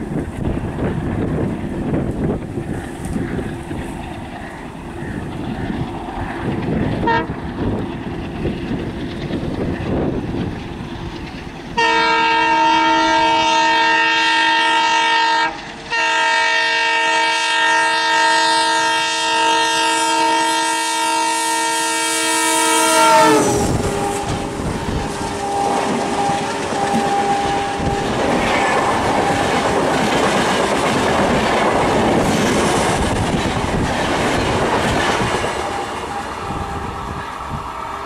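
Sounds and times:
diesel locomotive rumble: 0.0s - 38.0s
multi-tone train horn: 7.0s - 7.5s, 11.8s - 30.5s, 35.2s - 38.0s.

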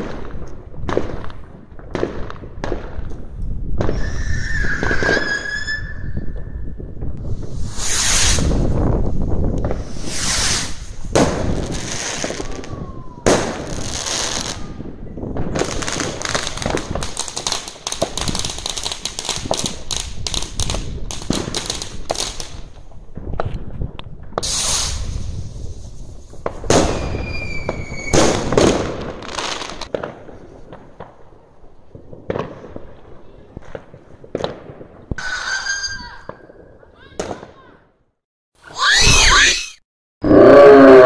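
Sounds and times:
fireworks crackling: 0.0s - 37.7s
fireworks bangs: 0.0s - 37.8s
firework whistle: 3.8s - 6.8s, 7.6s - 8.7s, 9.8s - 11.0s, 24.4s - 25.2s, 26.8s - 28.5s, 35.2s - 36.6s.

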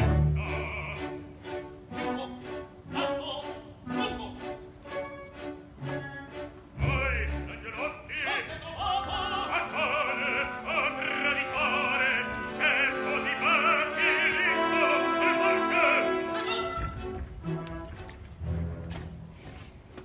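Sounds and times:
operatic singing with vibrato: 0.0s - 5.2s, 5.8s - 17.5s
orchestral accompaniment: 0.0s - 20.0s.

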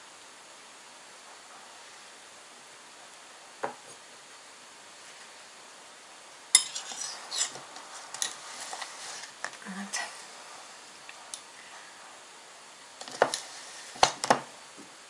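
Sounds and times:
spoon scraping ceramic bowl: 6.6s - 7.6s.

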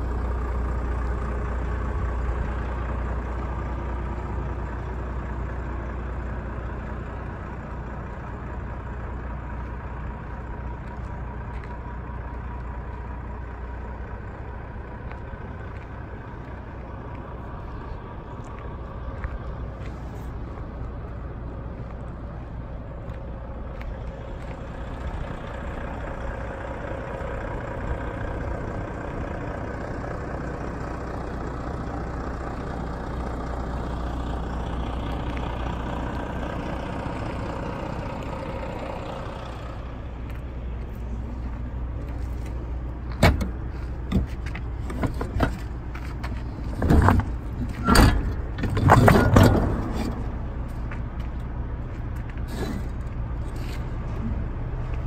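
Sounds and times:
low engine drone: 0.0s - 55.0s
metal clanks and knocks: 43.1s - 51.4s.

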